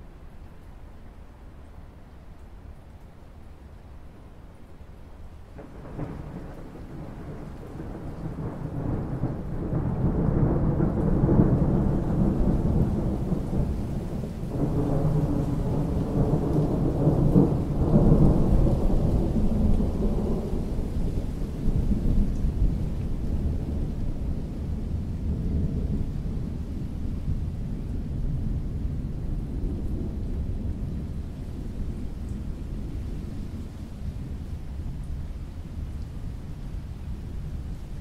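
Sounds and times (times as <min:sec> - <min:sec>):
rolling thunder: 0:05.6 - 0:34.5.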